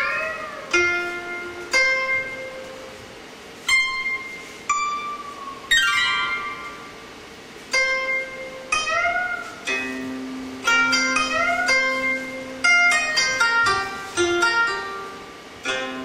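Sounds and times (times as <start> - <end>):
guitar plucked notes: 3.7 - 7.0, 7.7 - 16.0.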